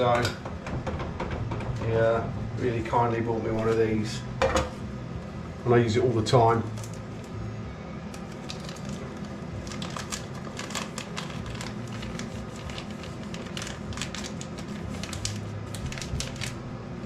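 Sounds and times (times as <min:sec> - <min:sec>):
steady low hum: 0:00.0 - 0:17.0
plastic bag crinkling: 0:08.2 - 0:16.7.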